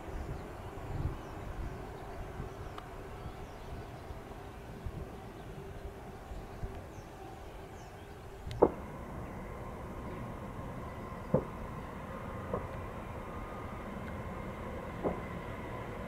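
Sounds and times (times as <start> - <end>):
distant train rumble: 0.0 - 16.0
faint steady whine: 0.0 - 16.0.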